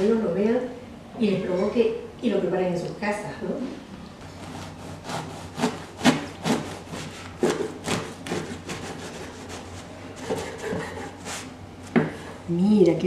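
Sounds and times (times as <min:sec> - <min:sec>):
bread knife sawing through crust: 0:04.4 - 0:11.5.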